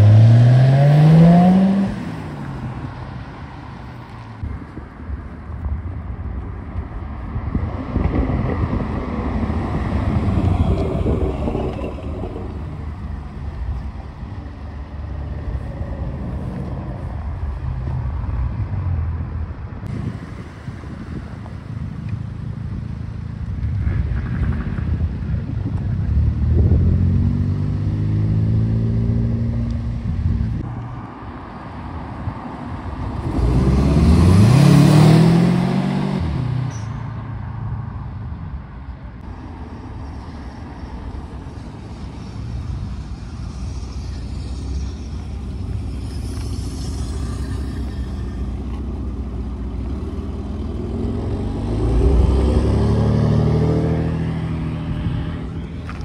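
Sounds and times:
cars driving past: 0.0 - 56.0.

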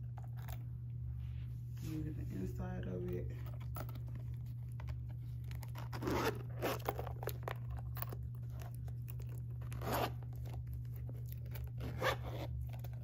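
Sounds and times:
low steady hum: 0.0 - 13.0
metal zipper being pulled open: 5.6 - 7.7, 9.2 - 10.6, 11.5 - 13.0.

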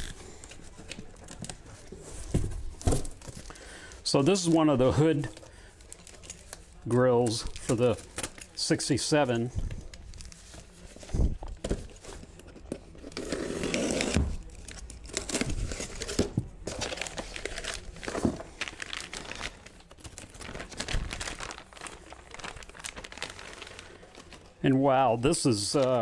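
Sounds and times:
plastic wrap crinkling: 14.4 - 26.0.

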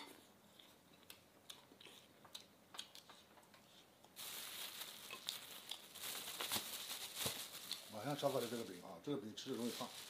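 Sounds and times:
plastic bag crinkling: 4.2 - 10.0.

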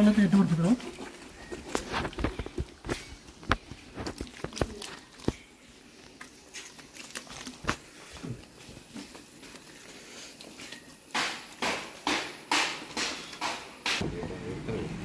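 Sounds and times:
rustling: 0.2 - 11.1.

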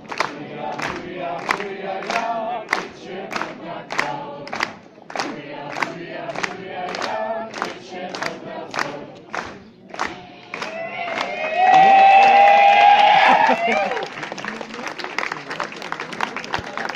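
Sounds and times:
choir singing folk song: 0.0 - 11.0.

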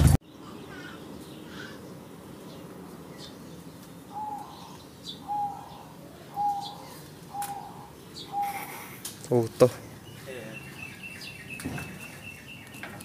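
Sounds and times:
high bird chirps: 10.0 - 13.0.

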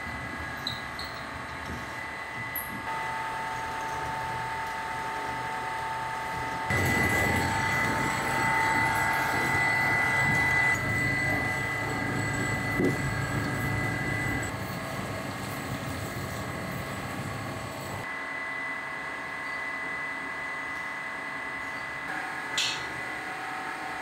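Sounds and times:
high whining tones: 0.0 - 14.6
machinery humming: 0.0 - 24.0.

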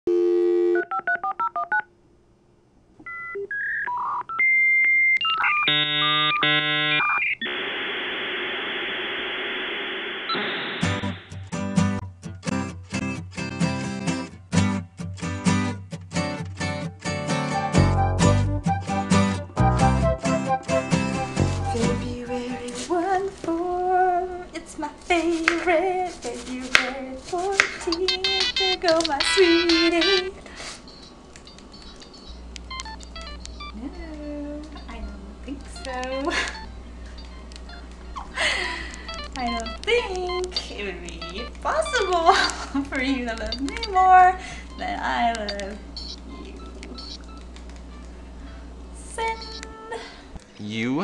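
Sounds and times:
dial tone: 0.1 - 1.8
hissing static: 5.7 - 11.5
person humming: 25.2 - 30.4
modem handshake tones: 27.8 - 48.1, 49.2 - 49.8
touch-tone dialing beeps: 27.9 - 30.3, 30.9 - 33.8, 35.8 - 38.1, 39.0 - 42.6, 43.4 - 44.0, 44.7 - 47.5, 49.4 - 49.6.

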